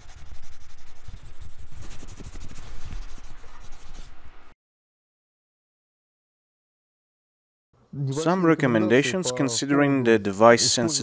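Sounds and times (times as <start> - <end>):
pen scratching on paper: 0.0 - 4.1.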